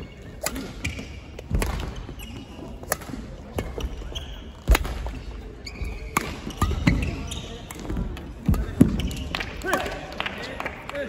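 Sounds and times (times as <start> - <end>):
racket striking shuttlecock: 0.4 - 2.0, 2.8 - 3.9, 4.6 - 5.1, 6.1 - 7.1.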